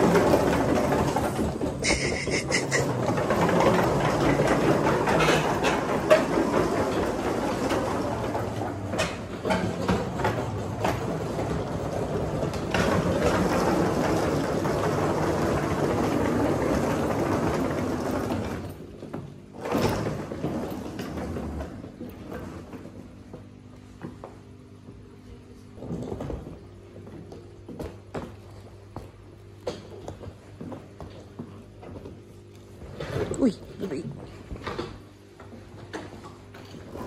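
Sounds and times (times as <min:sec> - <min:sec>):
knocks and rattles: 0:00.0 - 0:23.5.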